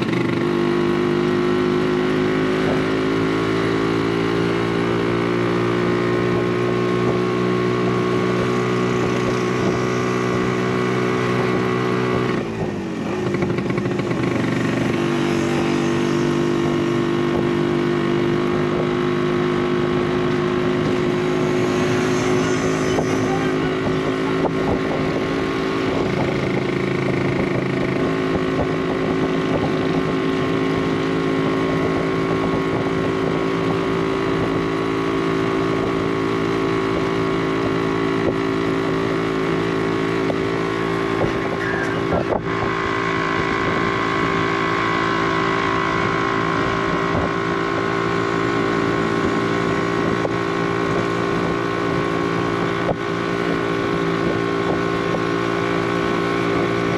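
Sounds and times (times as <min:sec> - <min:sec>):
auto rickshaw engine running: 0:00.0 - 0:56.9
wind noise on microphone: 0:19.9 - 0:34.6, 0:40.2 - 0:44.6, 0:46.0 - 0:56.9.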